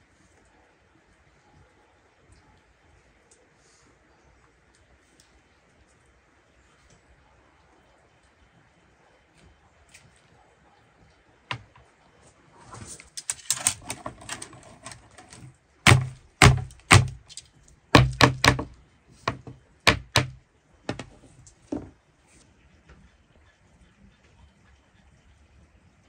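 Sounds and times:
rustling: 0:11.6 - 0:17.8
heavy chopping on wood: 0:15.9 - 0:17.3, 0:18.0 - 0:21.1.

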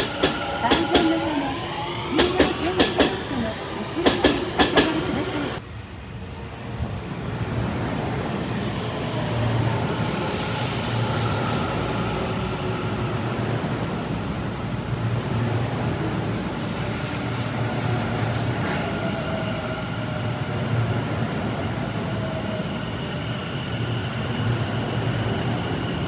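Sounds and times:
train running rumble: 0:00.0 - 0:18.8
train wheels clacking over rail joints: 0:04.0 - 0:05.3.

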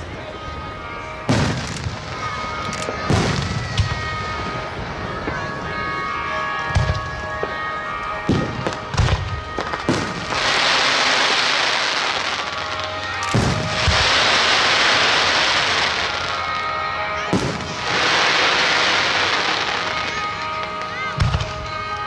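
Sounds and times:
fireworks crackling: 0:00.0 - 0:22.0
fireworks booming: 0:01.3 - 0:04.5, 0:08.3 - 0:16.6, 0:17.2 - 0:21.8.

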